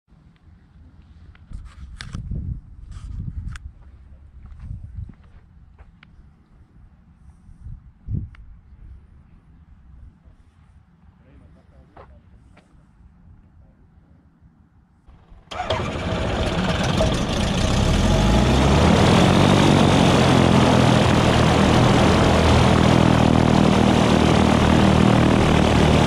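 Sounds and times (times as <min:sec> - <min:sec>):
aircraft engine starting: 0:15.1 - 0:26.0.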